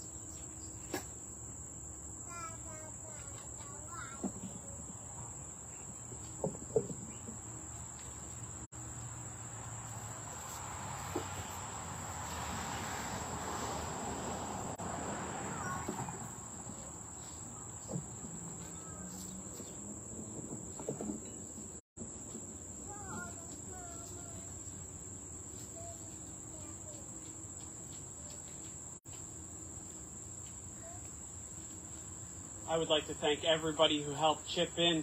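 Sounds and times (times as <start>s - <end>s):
high insect drone: 0.0s - 20.7s, 22.0s - 35.0s.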